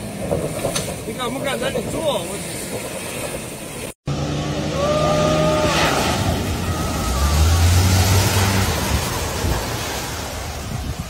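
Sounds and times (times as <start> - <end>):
tyres spraying water: 0.4 - 11.0
engine low drone: 3.0 - 10.7.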